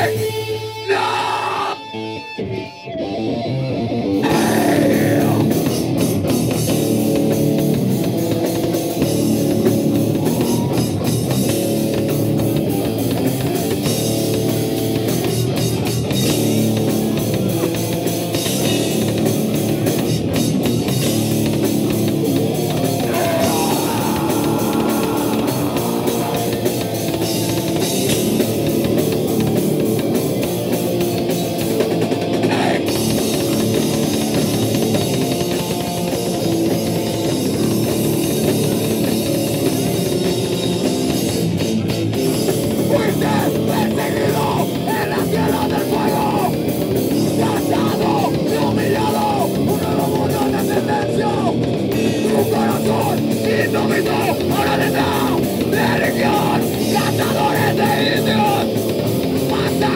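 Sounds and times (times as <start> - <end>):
heavy rock music: 0.0 - 59.9.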